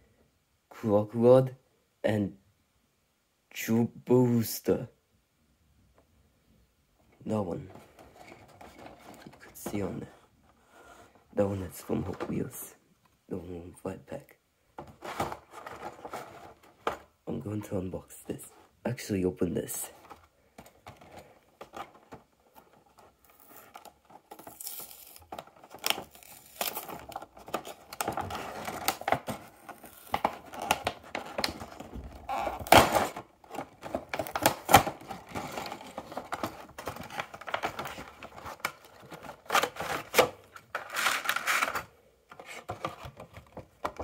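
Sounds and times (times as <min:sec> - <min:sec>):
plastic tray crinkling: 0:19.9 - 0:44.0
cardboard box tearing: 0:23.3 - 0:41.8.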